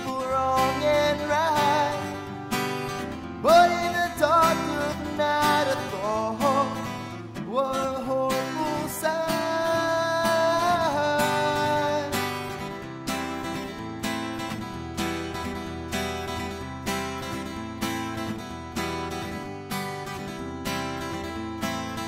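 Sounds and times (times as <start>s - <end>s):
man singing: 0.0s - 12.7s
strummed acoustic guitar: 0.0s - 22.0s.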